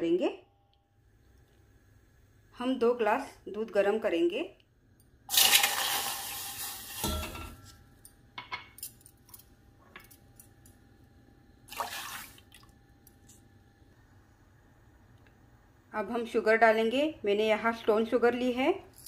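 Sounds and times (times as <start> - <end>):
milk pouring into saucepan: 5.3 - 7.0, 11.7 - 12.6.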